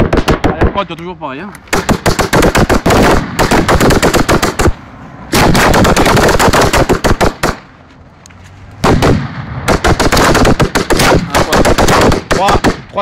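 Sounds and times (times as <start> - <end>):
fireworks bangs: 1.7 - 7.7, 8.8 - 12.8.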